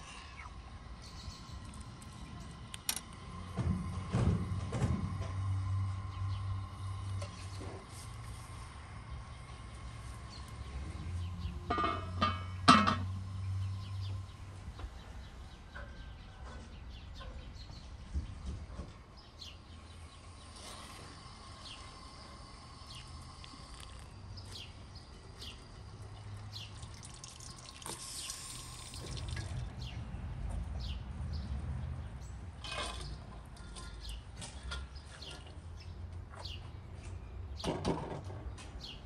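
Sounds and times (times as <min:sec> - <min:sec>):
liquid dripping and trickling: 0:26.4 - 0:29.7.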